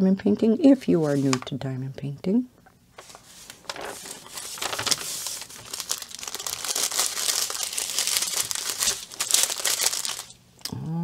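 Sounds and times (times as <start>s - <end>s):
plastic bags crinkling: 3.0s - 10.4s.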